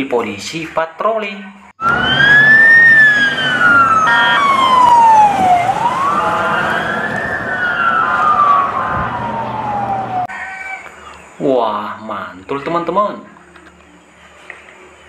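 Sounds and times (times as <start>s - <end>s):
emergency siren wailing: 1.8s - 10.5s.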